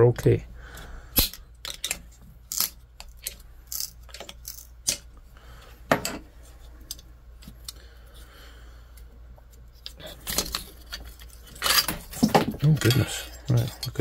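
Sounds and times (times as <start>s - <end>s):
metallic clinks and scrapes: 9.5s - 14.0s.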